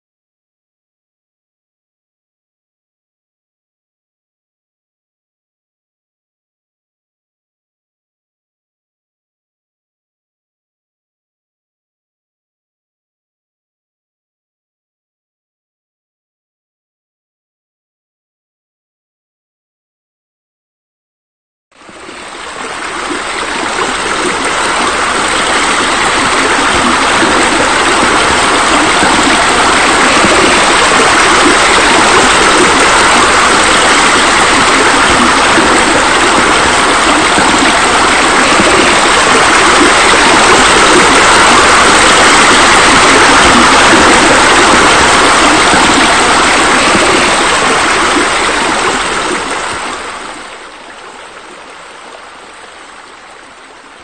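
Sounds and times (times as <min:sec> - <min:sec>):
running water: 0:21.8 - 0:54.0.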